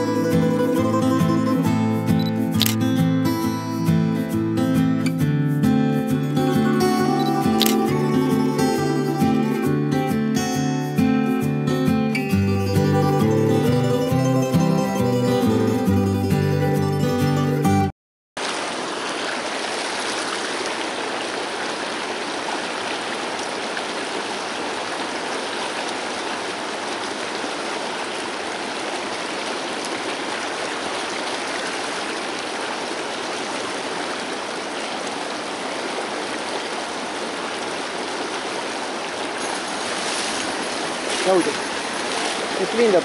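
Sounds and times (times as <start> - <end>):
river running over rocks: 18.4 - 43.0.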